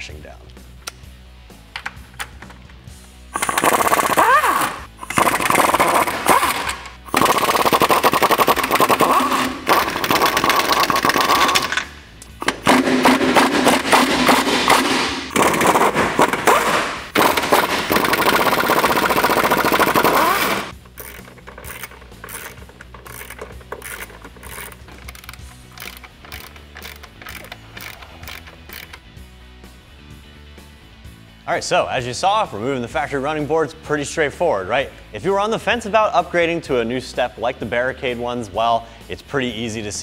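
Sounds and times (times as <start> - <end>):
pneumatic impact wrench hammering: 3.3 - 29.0.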